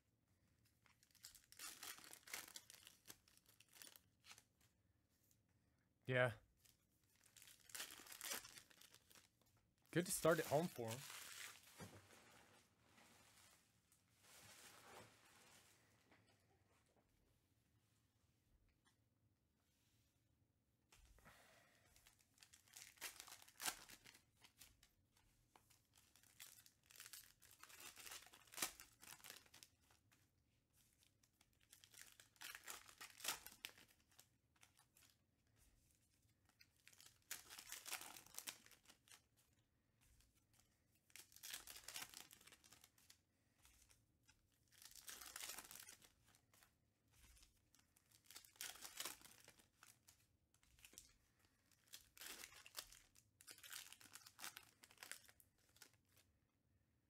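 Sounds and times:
foil wrapper crinkling: 0.8 - 4.4, 7.2 - 9.3, 22.0 - 24.2, 25.9 - 29.9, 31.6 - 35.2, 36.8 - 39.3, 41.0 - 43.9, 44.7 - 56.2.

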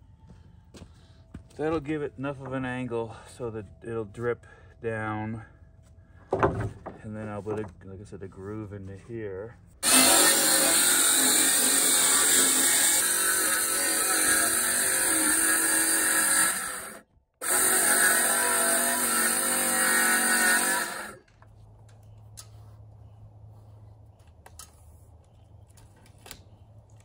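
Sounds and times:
power tool cutting wood: 9.8 - 21.2.

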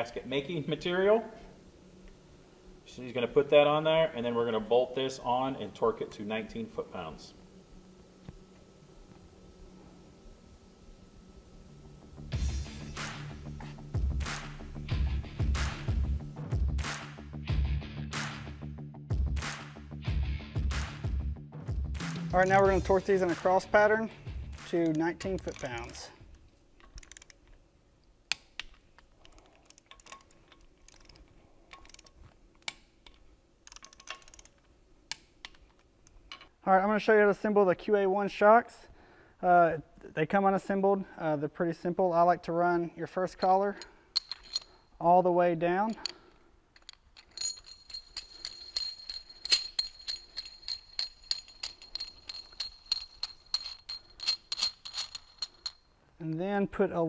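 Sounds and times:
torque wrench ratchet ticking: 24.8 - 26.0, 26.9 - 27.4, 30.9 - 32.8, 33.6 - 34.5
torque wrench sharp clicks: 26.8 - 27.4, 28.3 - 36.2
high metallic ring: 46.8 - 56.0.

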